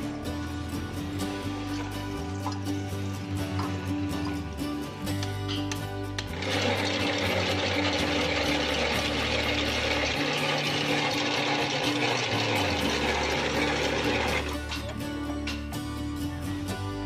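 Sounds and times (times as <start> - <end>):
background music with bass line: 0.0 - 17.0
mechanical winch whirring: 6.3 - 14.8.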